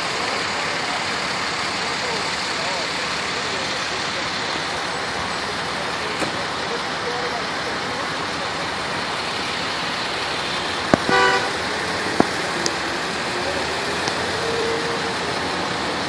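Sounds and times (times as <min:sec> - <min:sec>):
street traffic noise: 0:00.0 - 0:16.0
vehicle horn toot: 0:11.0 - 0:11.7.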